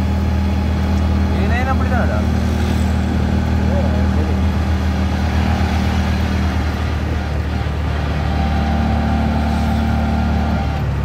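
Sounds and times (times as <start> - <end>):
auto-rickshaw engine running: 0.0 - 11.0
road traffic noise: 0.0 - 11.0.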